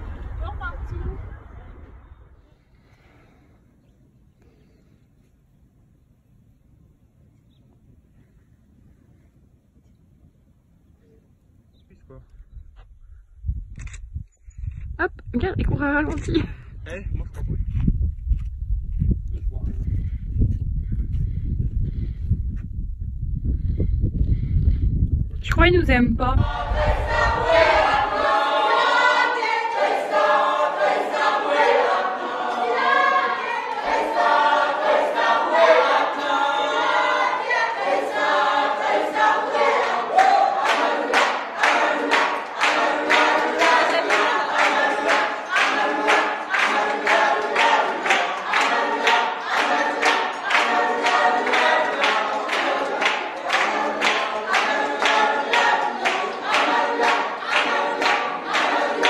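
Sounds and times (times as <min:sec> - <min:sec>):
group singing unaccompanied: 0:26.4 - 0:59.0
hand-clapping in time: 0:40.2 - 0:59.0.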